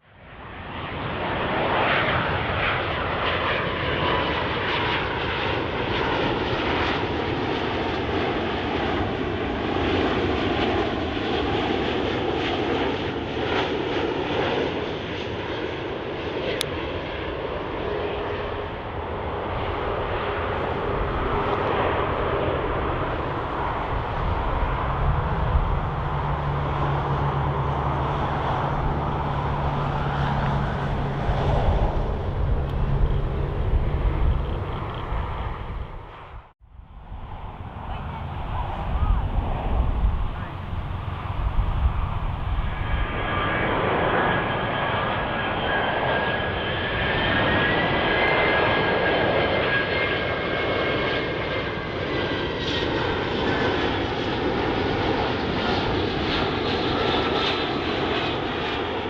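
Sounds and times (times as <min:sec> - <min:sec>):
jet engines roaring: 0:00.2 - 0:59.0
falling jet whine: 0:19.5 - 0:59.0.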